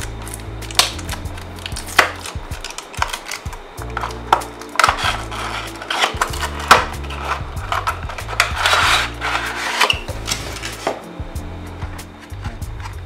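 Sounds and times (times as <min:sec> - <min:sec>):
packaging clicks and taps: 0:00.0 - 0:11.0
background music: 0:00.0 - 0:13.0
plastic tray scraping cardboard: 0:02.2 - 0:11.0.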